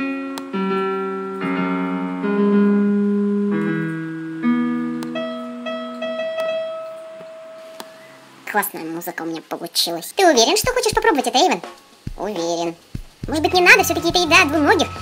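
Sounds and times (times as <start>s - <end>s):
piano chords: 0.0s - 8.5s, 12.9s - 15.0s.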